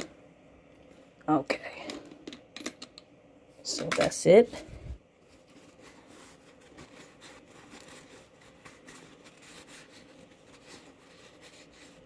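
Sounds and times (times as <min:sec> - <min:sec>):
faint steady hum: 0:00.0 - 0:12.0
rubbing and handling sounds: 0:03.6 - 0:12.0.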